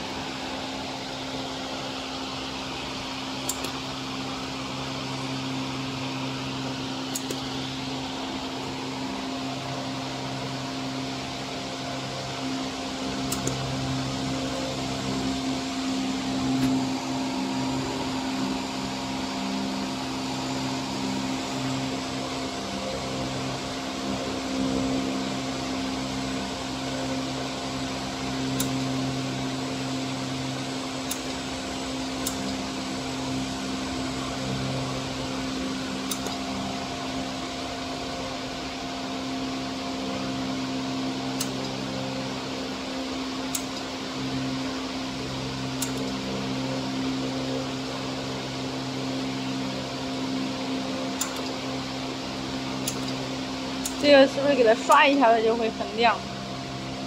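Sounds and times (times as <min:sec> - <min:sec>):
cooling fans humming: 0:00.0 - 0:57.0.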